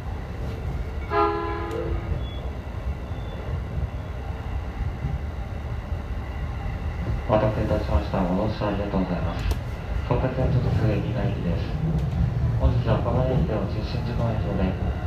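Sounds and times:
train rumbling on track: 0.0s - 15.0s
train horn toot: 1.0s - 2.3s.

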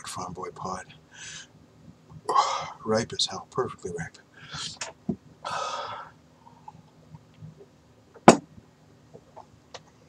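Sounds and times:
man breathing in sharply: 1.1s - 1.5s, 5.4s - 6.1s
loud sharp knock: 8.3s - 8.5s.

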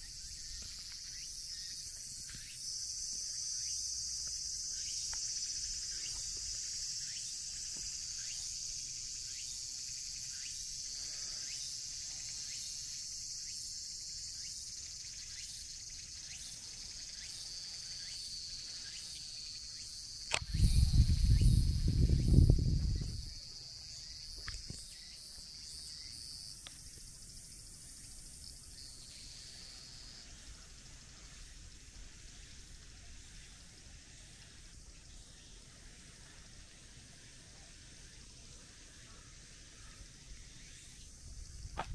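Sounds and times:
insects chorus: 0.0s - 41.9s
sharp tick: 20.3s - 20.7s.

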